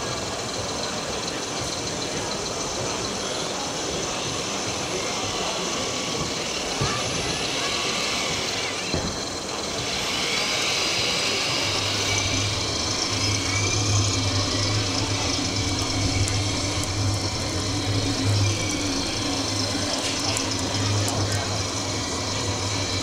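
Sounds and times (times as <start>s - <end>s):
exhibition hall crowd noise: 0.0s - 23.0s.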